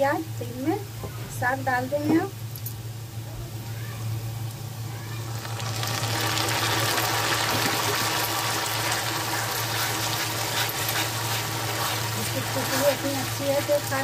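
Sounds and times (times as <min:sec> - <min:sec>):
greens sizzling in oil: 0:04.5 - 0:14.0.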